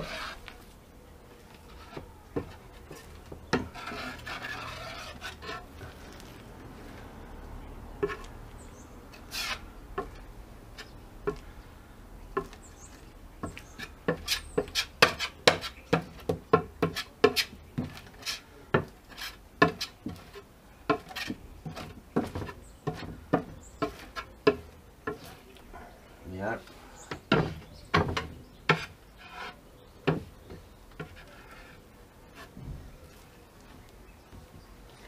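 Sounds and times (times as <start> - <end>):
metal scraper spreading adhesive: 0.0 - 0.5, 1.7 - 5.7, 9.1 - 10.1.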